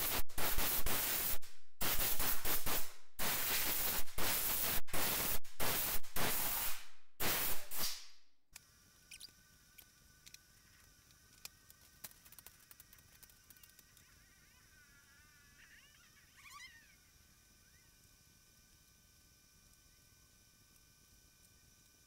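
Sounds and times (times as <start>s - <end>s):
compressed air hissing: 0.0s - 8.1s
faint clicks: 8.6s - 14.2s.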